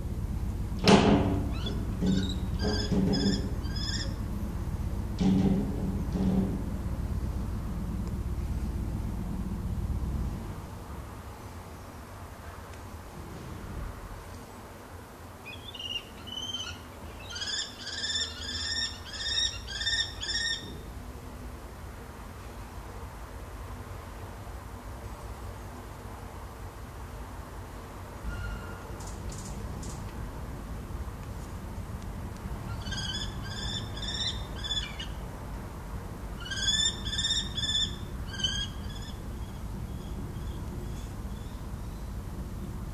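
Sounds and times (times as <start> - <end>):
kestrel calling: 1.5 - 4.3, 15.5 - 20.8, 32.6 - 35.2, 36.4 - 42.1.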